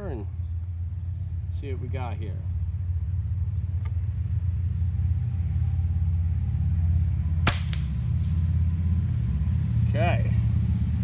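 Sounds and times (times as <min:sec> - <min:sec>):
low rumble: 0:00.4 - 0:11.0
air rifle shot crack: 0:07.4 - 0:08.1.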